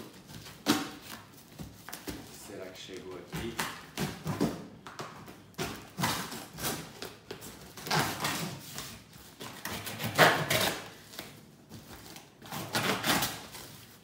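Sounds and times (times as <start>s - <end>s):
packing tape tearing: 5.6s - 11.4s, 12.0s - 14.0s.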